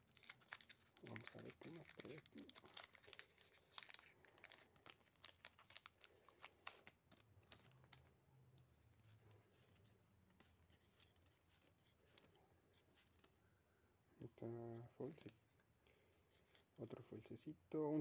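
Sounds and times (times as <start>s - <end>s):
foil wrapper crinkling: 0.0s - 8.1s
cards rustling: 0.0s - 13.5s, 14.2s - 15.5s.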